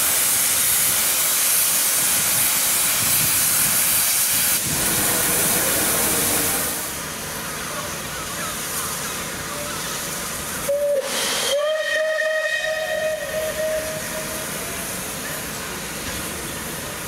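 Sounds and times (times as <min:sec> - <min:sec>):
loud rush of steam: 0:00.0 - 0:17.0
steady hiss of steam: 0:00.0 - 0:17.0
steam locomotive whistle: 0:10.6 - 0:14.9.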